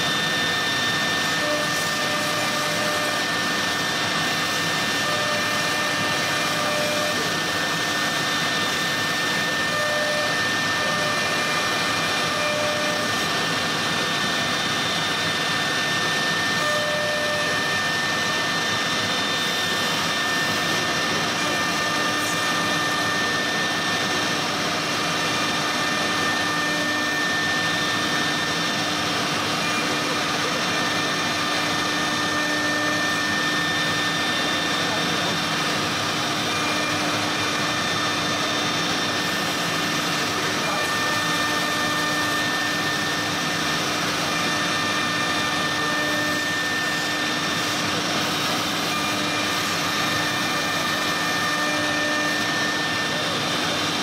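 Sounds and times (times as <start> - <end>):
router spindle whining: 0.0 - 54.0.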